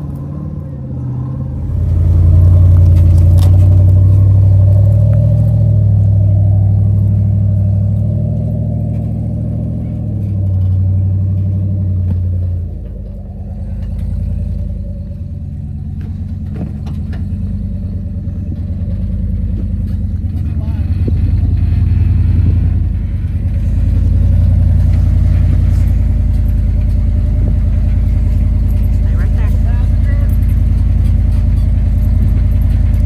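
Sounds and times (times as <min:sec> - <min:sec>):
vehicle engine under load: 0:00.0 - 0:33.0
sharp knocks and clatters: 0:15.9 - 0:17.8, 0:18.4 - 0:33.0.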